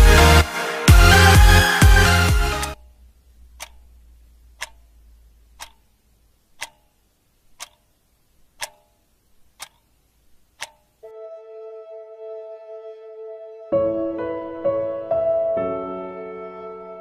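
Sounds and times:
soft music: 0.0s - 2.9s, 11.0s - 17.0s
clock ticking: 2.7s - 11.0s.

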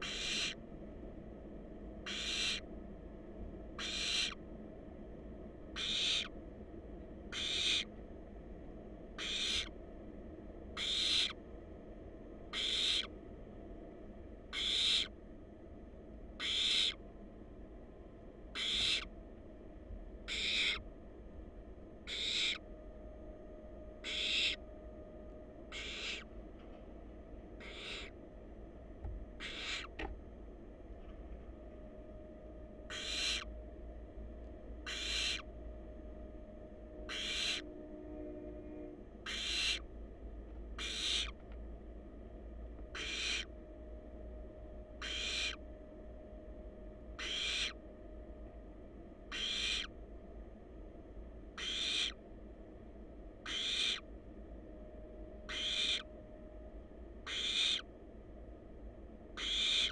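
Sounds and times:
owl chicks hissing: 0.0s - 0.6s, 2.0s - 2.7s, 3.8s - 4.4s, 5.8s - 6.4s, 7.3s - 7.9s, 9.2s - 9.7s, 10.8s - 11.4s, 12.5s - 13.1s, 14.5s - 15.2s, 16.4s - 17.0s, 18.5s - 19.1s, 20.3s - 20.8s, 22.0s - 22.6s, 24.0s - 24.6s, 25.7s - 26.3s, 27.6s - 28.2s, 29.4s - 29.9s, 32.9s - 33.5s, 34.8s - 35.5s, 37.1s - 37.7s, 39.2s - 39.9s, 40.8s - 41.4s, 42.9s - 43.5s, 45.0s - 45.6s, 47.2s - 47.8s, 49.3s - 49.9s, 51.6s - 52.2s, 53.4s - 54.1s, 55.5s - 56.0s, 57.2s - 57.9s, 59.4s - 59.9s.

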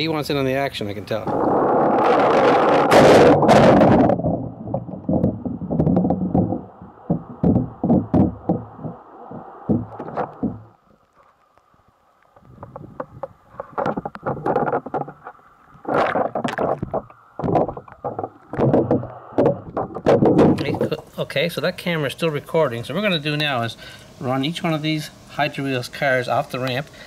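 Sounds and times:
muffled water sloshing: 1.3s - 11.1s, 12.5s - 20.8s
irregular knocks: 4.7s - 10.7s, 16.0s - 20.7s.

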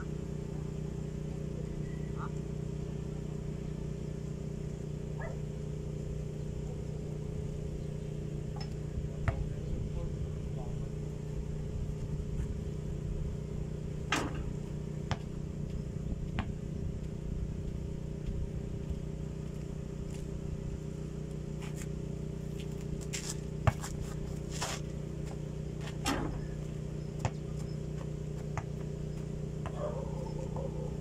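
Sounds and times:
low motor hum: 0.0s - 31.0s
basketball bouncing on dirt: 8.6s - 9.5s, 14.2s - 18.4s, 23.0s - 29.9s
shoes scuffing on ground: 21.6s - 26.5s.

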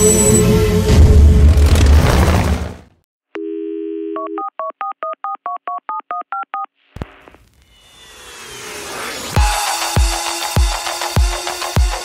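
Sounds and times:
music: 0.0s - 1.6s, 9.4s - 12.0s.

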